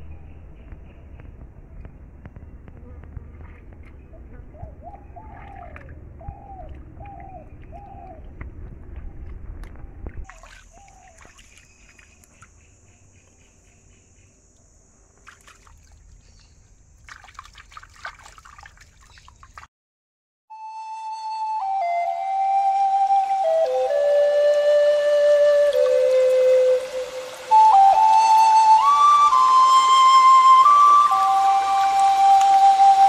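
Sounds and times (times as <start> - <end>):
bird calling: 3.9 - 8.4, 9.1 - 14.0
stream water trickling: 4.8 - 12.8, 14.6 - 19.7, 22.3 - 33.0.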